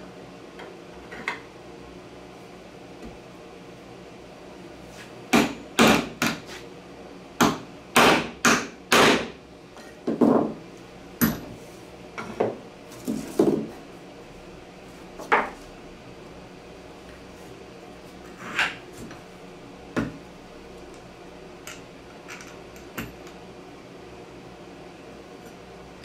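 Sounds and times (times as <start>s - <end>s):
tools and parts knocking on workbench: 9.1s - 10.6s, 11.2s - 11.6s, 12.2s - 13.8s, 15.2s - 15.6s, 20.0s - 20.2s.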